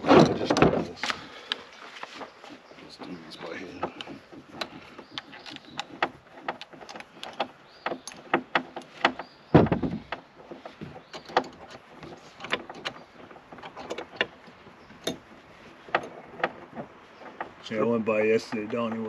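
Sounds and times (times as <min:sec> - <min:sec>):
tools clicking on plastic: 0:03.8 - 0:09.3
heavy thump: 0:09.0 - 0:10.2.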